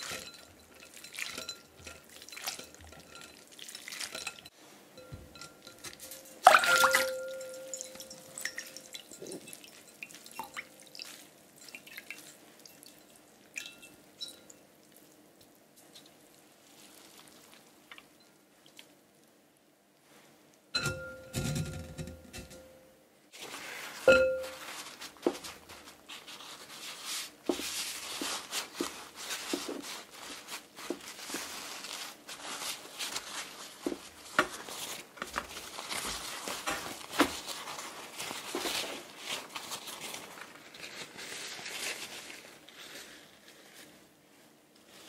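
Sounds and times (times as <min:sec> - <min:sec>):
paper towel rustling: 0:23.3 - 0:45.0.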